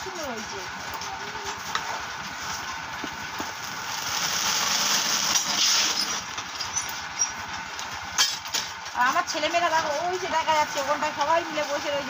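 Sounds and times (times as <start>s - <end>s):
steam hissing from wok: 3.8s - 6.3s.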